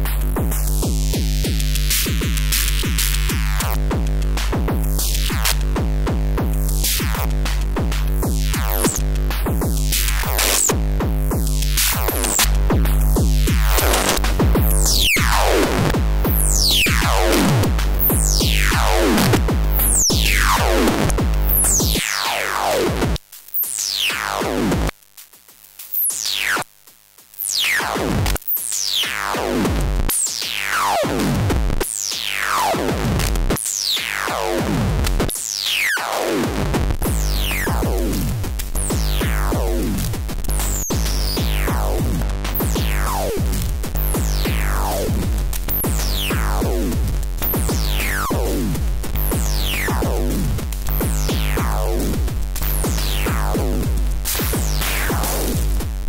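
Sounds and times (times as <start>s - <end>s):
distorted drum machine beat: 0.0s - 56.0s
deep bass tone: 36.6s - 56.0s
electronic drum hits: 36.6s - 56.0s.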